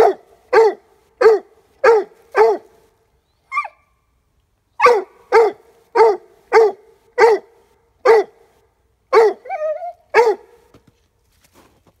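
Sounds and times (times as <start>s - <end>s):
dog barking: 0.0s - 2.7s, 4.8s - 8.4s, 9.1s - 10.6s.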